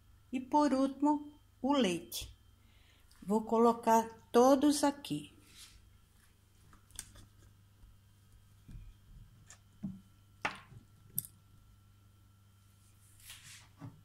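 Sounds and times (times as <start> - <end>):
faint steady hum: 0.0 - 14.0
objects knocking on counter: 9.8 - 10.8.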